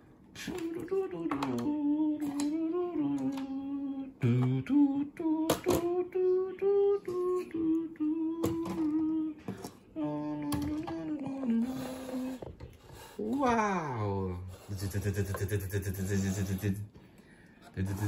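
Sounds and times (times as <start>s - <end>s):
person humming: 0.4s - 12.6s.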